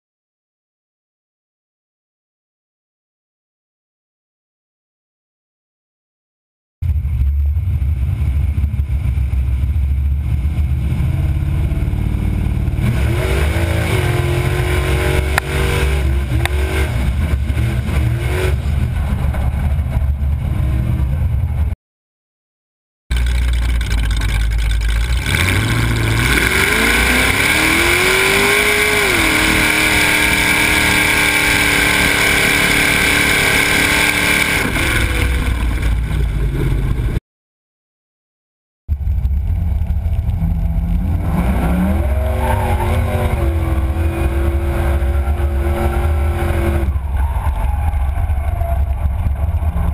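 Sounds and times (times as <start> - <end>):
truck engine revving: 6.9 - 21.8, 23.1 - 37.2, 38.9 - 49.9.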